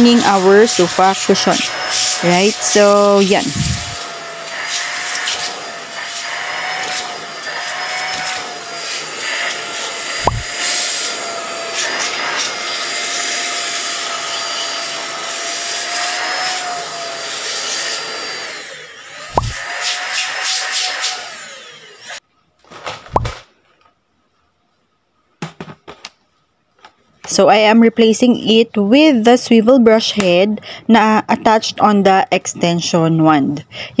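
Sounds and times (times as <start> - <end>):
handheld vacuum cleaner running: 0.0 - 22.2.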